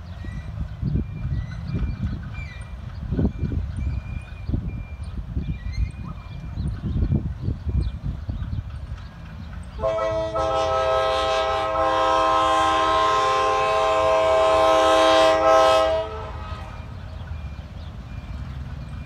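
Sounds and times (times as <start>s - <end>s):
locomotive air horn blast: 9.8s - 16.9s.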